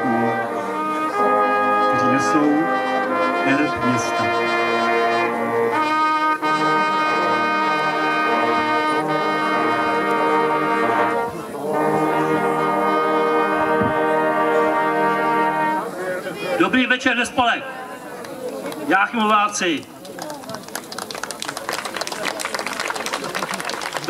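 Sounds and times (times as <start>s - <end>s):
brass playing solemn chords: 0.0s - 16.0s
person speaking: 3.3s - 4.6s.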